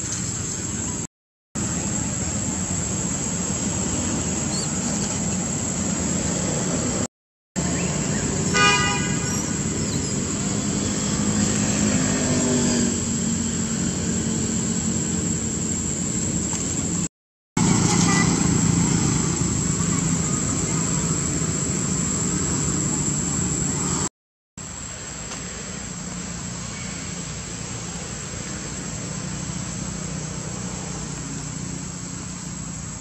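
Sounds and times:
traffic noise: 0:00.0 - 0:33.0
engine passing: 0:05.2 - 0:16.9, 0:17.6 - 0:24.1
vehicle horn toot: 0:08.4 - 0:09.6, 0:17.8 - 0:18.5.

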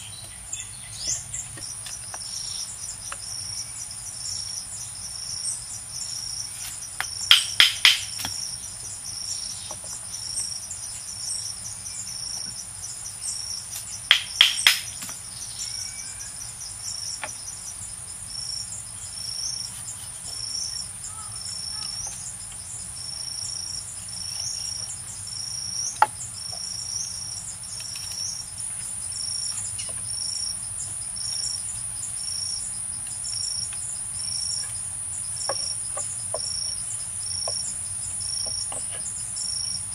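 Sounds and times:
insect chorus buzzing and chirping: 0:00.0 - 0:39.9
sharp knocks on wood: 0:07.0 - 0:08.4, 0:14.1 - 0:15.2.

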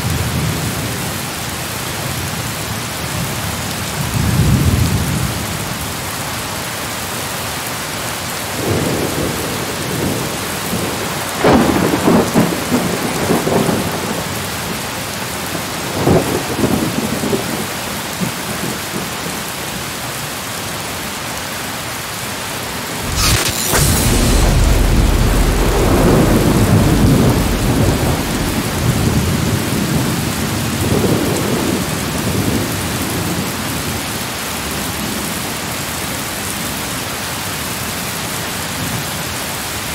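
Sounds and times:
rain hiss: 0:03.8 - 0:17.6, 0:22.9 - 0:35.6
sharp thunderclap: 0:23.0 - 0:31.6
thunder rumbling: 0:23.0 - 0:31.7.

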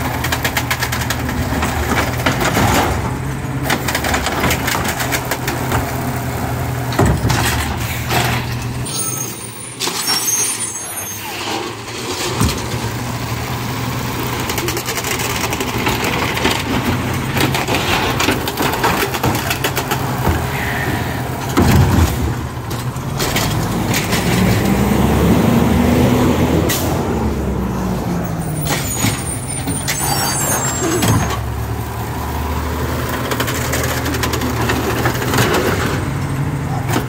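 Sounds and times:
knocks and clatter: 0:00.0 - 0:08.8, 0:14.2 - 0:20.5, 0:21.4 - 0:24.9, 0:33.1 - 0:36.2
garbage truck diesel engine revving: 0:11.7 - 0:37.0.

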